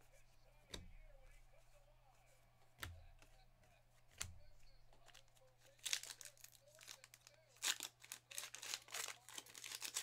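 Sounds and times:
plastic wrapper crinkling and tearing: 5.0s - 10.0s.

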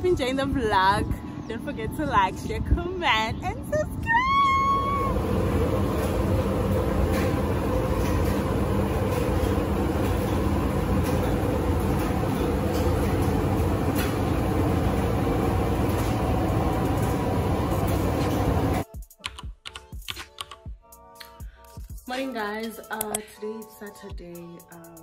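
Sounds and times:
loud rumble and hiss: 0.0s - 18.8s
faint music: 0.0s - 20.2s.

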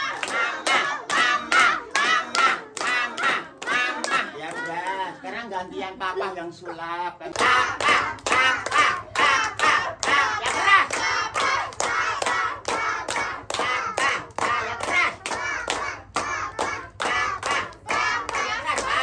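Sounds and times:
rhythmic hand clapping: 0.0s - 5.4s, 7.2s - 19.0s.

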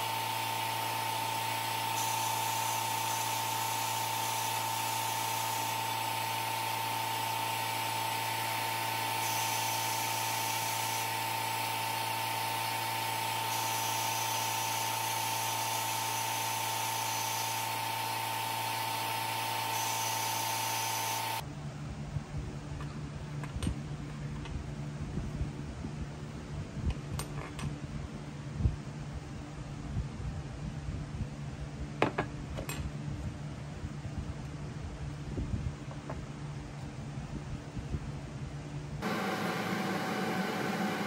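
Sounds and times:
power tool whining: 0.0s - 21.4s, 39.0s - 41.0s.

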